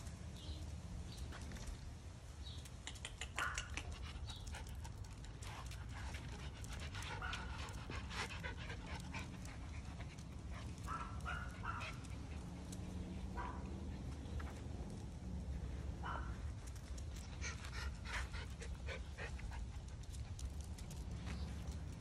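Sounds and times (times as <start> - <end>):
short clicks and scuffs: 2.6 - 4.1
dogs panting: 2.9 - 22.0.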